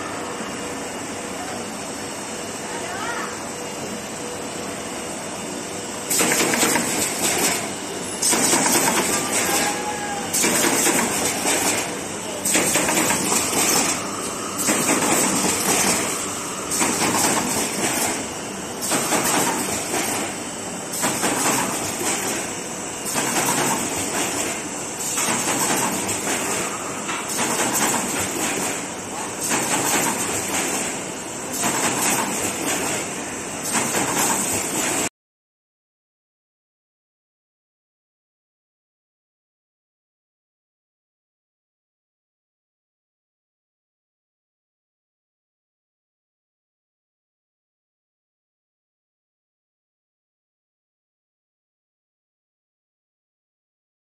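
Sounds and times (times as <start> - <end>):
box assembly machine cycling: 6.1 - 35.1.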